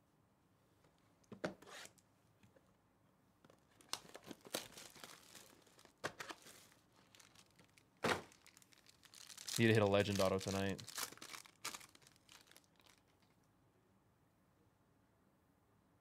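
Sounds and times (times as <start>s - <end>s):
plastic wrap tearing and crinkling: 3.7s - 13.3s.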